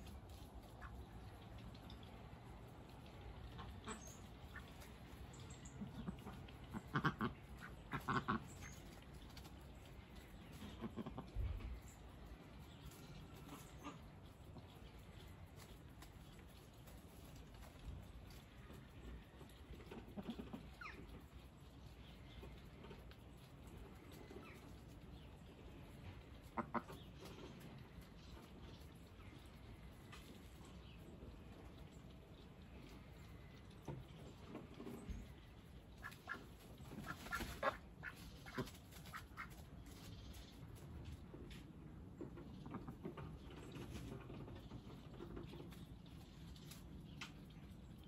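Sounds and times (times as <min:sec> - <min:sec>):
ducks quacking: 0:03.4 - 0:09.0, 0:10.5 - 0:11.8, 0:13.2 - 0:14.7, 0:19.8 - 0:21.2, 0:26.4 - 0:27.4, 0:35.9 - 0:39.6.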